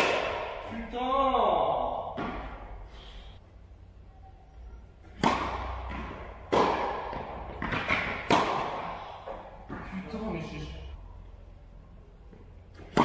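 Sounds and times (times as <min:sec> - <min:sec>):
tennis racket hitting ball: 0:00.0 - 0:00.7, 0:05.0 - 0:10.0, 0:12.8 - 0:13.0
tennis ball bouncing: 0:02.1 - 0:02.8, 0:05.0 - 0:10.2, 0:12.7 - 0:13.0.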